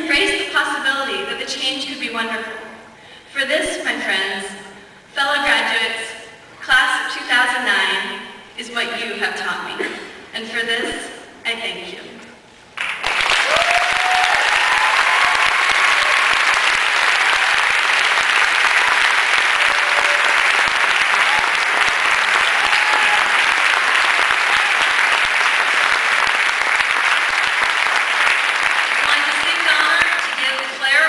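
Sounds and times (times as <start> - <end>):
audience applause: 12.8 - 30.7.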